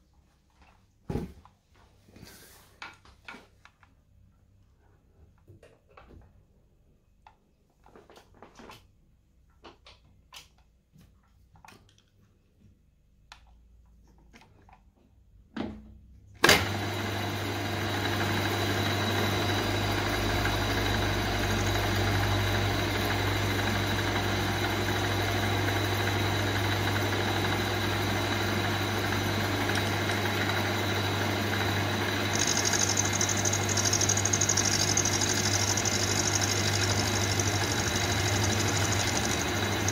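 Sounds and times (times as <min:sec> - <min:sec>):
milling machine motor humming: 0:16.4 - 0:39.9.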